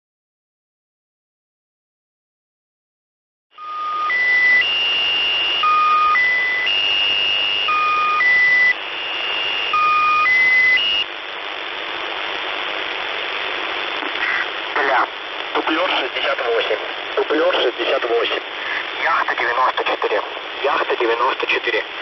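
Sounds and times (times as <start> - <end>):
short radio beeps: 3.6 - 11.1
radio static hiss: 3.6 - 22.0.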